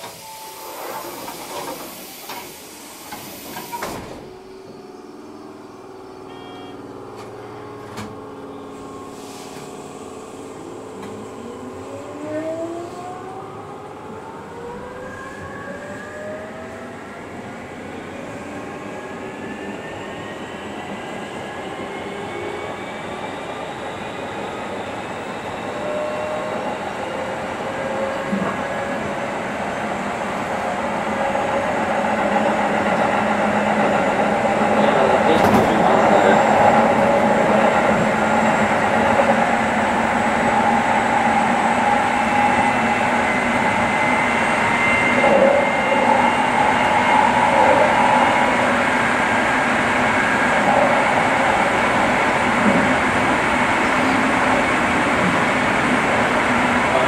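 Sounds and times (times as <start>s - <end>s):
train wheels rumbling on rail: 18.1s - 57.0s.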